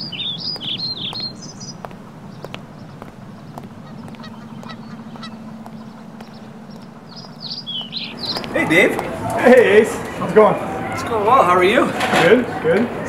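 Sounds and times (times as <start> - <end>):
songbirds chirping: 0.0 - 13.0
steady low hum: 0.0 - 13.0.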